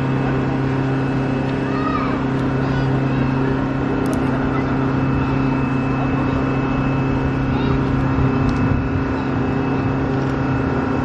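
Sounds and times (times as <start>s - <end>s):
faint voices: 0.0s - 9.8s
machine drone with whine: 0.0s - 11.0s.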